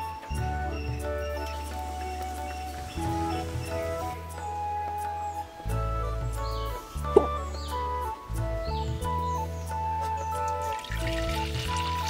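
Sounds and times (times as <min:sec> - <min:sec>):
instrumental music: 0:00.0 - 0:12.0
hot water trickling into a bowl: 0:10.5 - 0:12.0.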